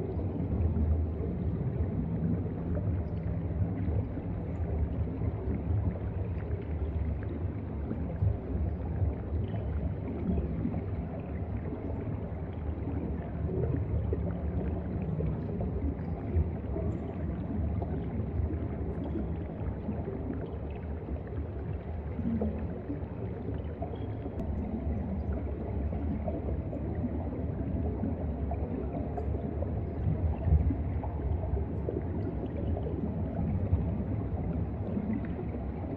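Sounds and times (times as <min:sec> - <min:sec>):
underwater water rumble: 0:00.0 - 0:35.9.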